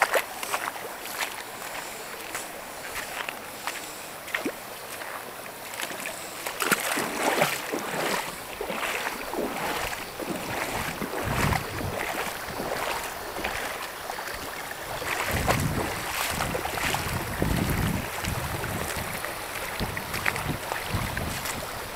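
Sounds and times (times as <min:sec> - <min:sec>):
stream gurgling over rocks: 0:00.0 - 0:21.9
wind rumble on microphone: 0:08.6 - 0:13.8, 0:14.8 - 0:21.9.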